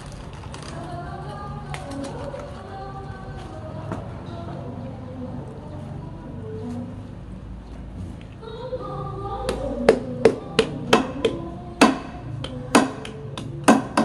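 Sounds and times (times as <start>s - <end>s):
background music: 8.6s - 14.0s.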